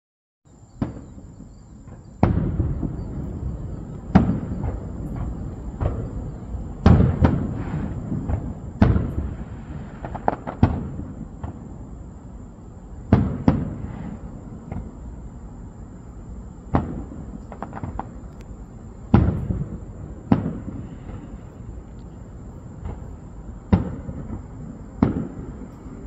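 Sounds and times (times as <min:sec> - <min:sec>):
firework shells bursting: 0:01.9 - 0:11.6, 0:16.7 - 0:26.0.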